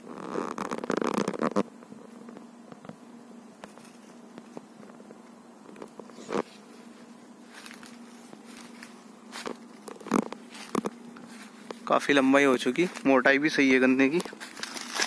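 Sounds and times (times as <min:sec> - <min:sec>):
faint steady hum: 0:00.0 - 0:15.0
footsteps on dry leaves: 0:06.0 - 0:15.0.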